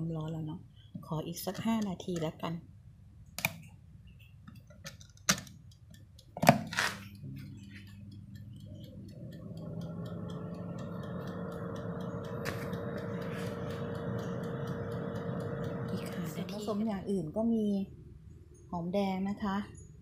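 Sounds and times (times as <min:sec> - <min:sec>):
faint timer ticking: 0:05.5 - 0:06.4, 0:07.1 - 0:17.9
timer dial clicks: 0:05.5 - 0:06.5, 0:07.1 - 0:17.1
fan whirring: 0:05.6 - 0:17.9
oven motor hum: 0:05.7 - 0:17.7.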